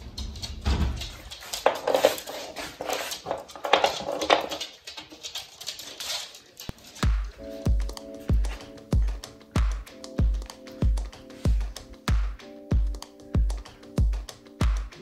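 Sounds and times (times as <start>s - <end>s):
music with deep thumping beat: 7.0s - 15.0s.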